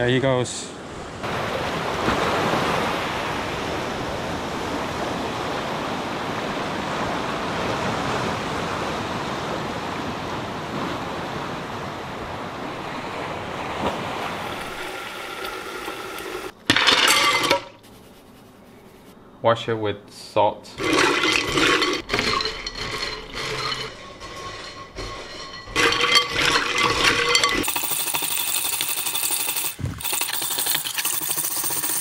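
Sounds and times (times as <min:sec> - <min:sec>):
ocean waves washing over rocks: 0:01.2 - 0:16.5.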